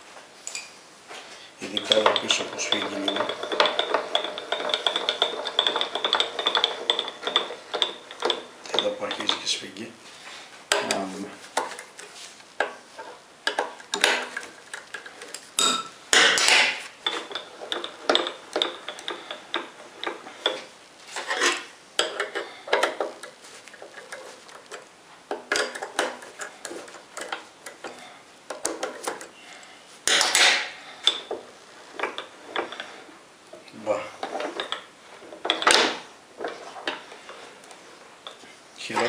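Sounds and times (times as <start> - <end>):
metal plate scraping on rails: 1.6 - 9.6, 16.2 - 24.7.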